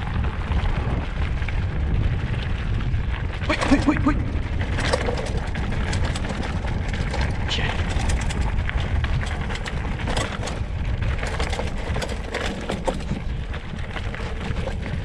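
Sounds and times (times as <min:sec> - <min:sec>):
mountain bike rattling over rocks: 0:00.0 - 0:15.0
wind buffeting microphone: 0:00.0 - 0:15.0.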